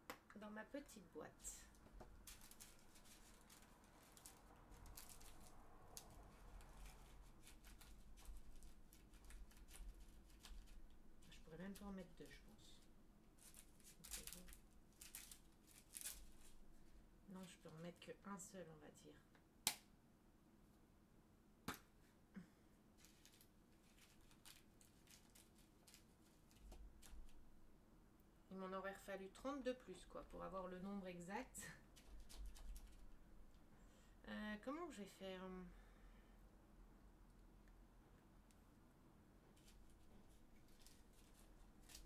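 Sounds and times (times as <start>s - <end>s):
plastic bag crinkling: 2.0s - 17.8s, 23.0s - 27.5s, 31.9s - 33.2s, 39.6s - 42.0s.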